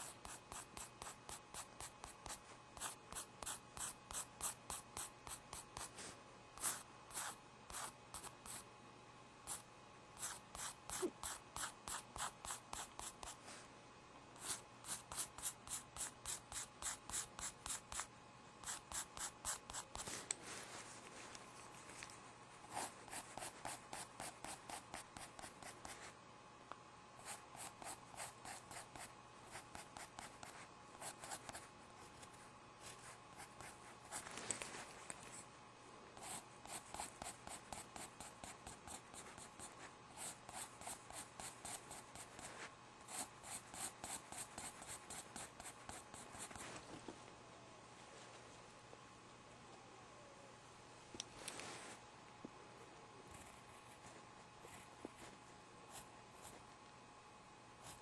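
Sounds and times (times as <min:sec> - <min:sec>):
pen drawing strokes on paper: 0:00.0 - 0:06.0, 0:10.2 - 0:13.4, 0:14.4 - 0:20.1, 0:22.7 - 0:26.1, 0:36.2 - 0:42.5.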